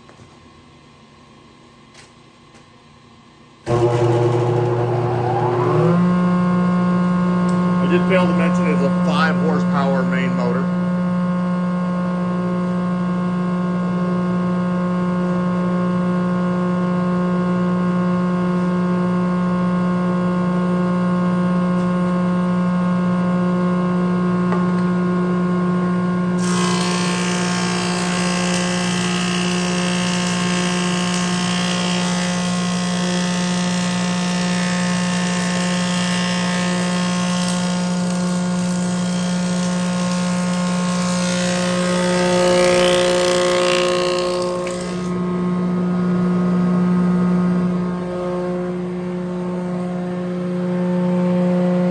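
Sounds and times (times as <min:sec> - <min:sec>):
planer motor humming: 0:03.7 - 0:10.9, 0:25.8 - 0:46.0
planer knives cutting wood: 0:26.4 - 0:45.2.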